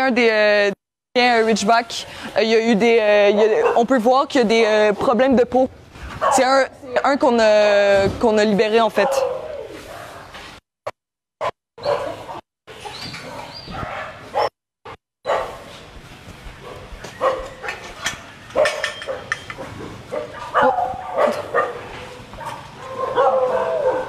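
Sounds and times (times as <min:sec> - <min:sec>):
dogs barking and yipping: 0:03.2 - 0:04.0, 0:09.0 - 0:10.4, 0:11.4 - 0:14.5, 0:15.3 - 0:15.7, 0:16.6 - 0:24.0.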